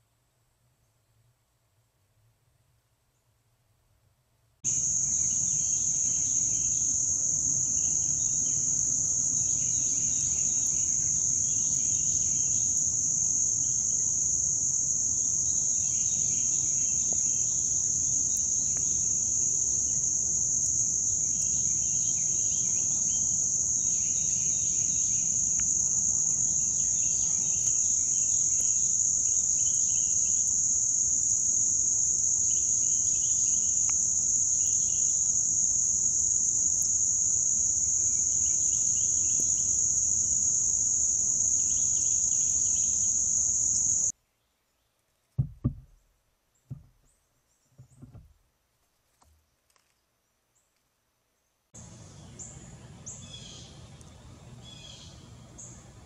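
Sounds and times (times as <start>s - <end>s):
crickets trilling: 4.7s - 44.2s, 51.8s - 56.0s.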